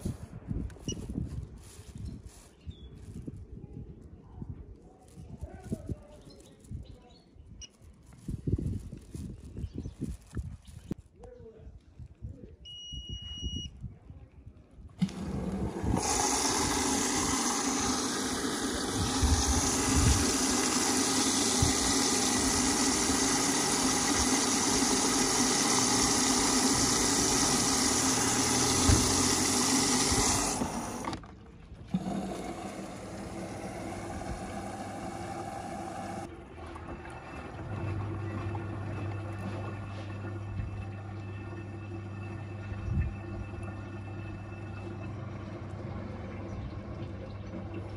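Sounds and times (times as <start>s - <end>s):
washing machine beeping: 12.7s - 13.7s, 33.3s - 47.9s
water rushing into washing machine: 15.0s - 31.2s, 31.9s - 47.9s.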